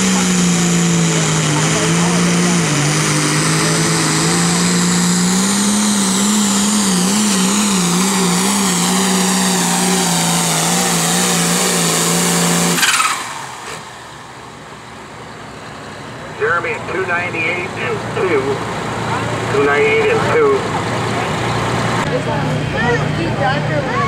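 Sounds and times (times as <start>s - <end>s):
tractor diesel engine under load: 0.0s - 24.0s.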